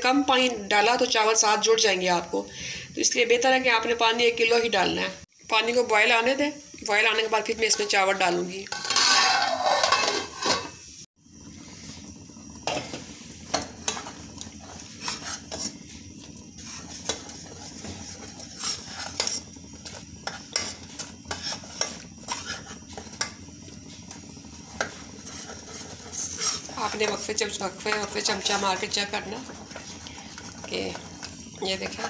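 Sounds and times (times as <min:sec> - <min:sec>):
spoon scraping metal saucepan: 0:07.7 - 0:10.8, 0:14.7 - 0:15.8, 0:20.2 - 0:23.3, 0:24.7 - 0:27.3
metal lid clattering on pot: 0:08.7 - 0:10.8.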